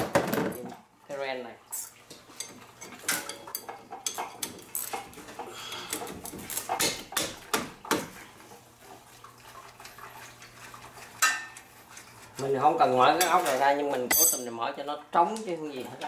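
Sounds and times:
metal tools clinking and knocking: 0:14.1 - 0:14.6.

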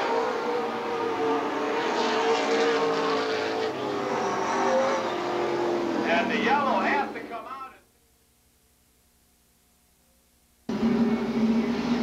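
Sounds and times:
race car engines droning: 0:00.0 - 0:07.8, 0:10.7 - 0:12.0.

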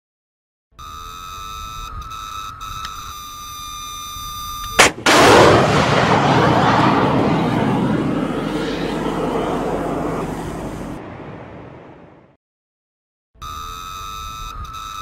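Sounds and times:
sharp bang of ejection motor: 0:04.8 - 0:07.6
rocket motor rushing: 0:04.8 - 0:11.4.

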